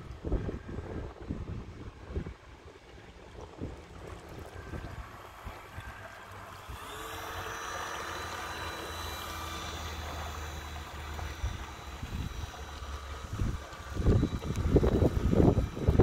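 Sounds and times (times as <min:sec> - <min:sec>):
model boat motor whine: 0:00.0 - 0:16.0
propeller wash churning: 0:00.0 - 0:16.0.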